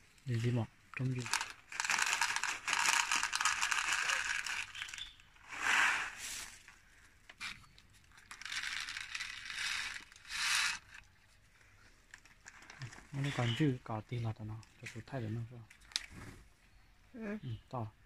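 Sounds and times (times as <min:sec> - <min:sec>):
plastic bag crinkling: 0:00.9 - 0:06.8, 0:07.7 - 0:11.1, 0:12.1 - 0:13.6.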